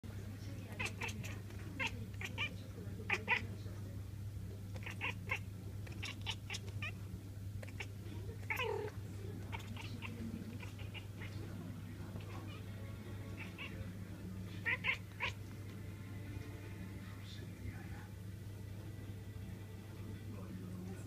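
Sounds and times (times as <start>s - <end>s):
cat meowing: 0.7s - 3.4s, 4.8s - 7.0s, 7.6s - 11.4s, 12.2s - 13.8s, 14.6s - 15.4s
cat chattering clicks: 0.8s - 2.5s, 4.7s - 7.0s, 7.6s - 8.9s, 9.5s - 11.3s.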